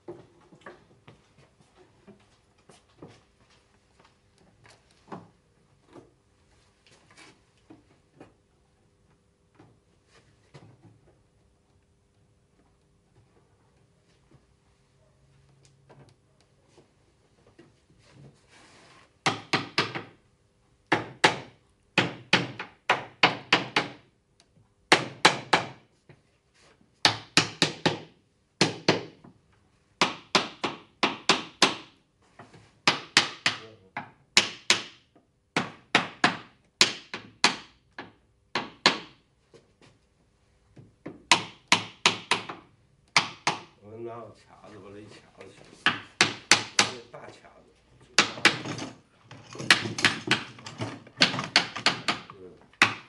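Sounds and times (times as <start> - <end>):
sharp wooden knocks: 19.2 - 20.2, 20.9 - 24.1, 24.9 - 25.8, 27.0 - 29.3, 30.0 - 32.0, 32.8 - 39.2, 41.0 - 43.8, 45.8 - 47.0, 48.2 - 53.0.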